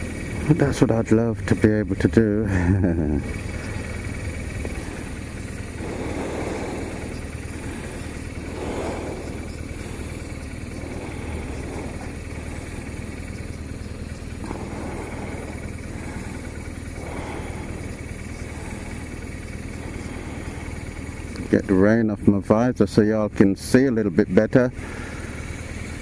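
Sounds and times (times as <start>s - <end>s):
motorcycle engine idling: 0.0s - 26.0s
passing hiss: 3.0s - 21.9s.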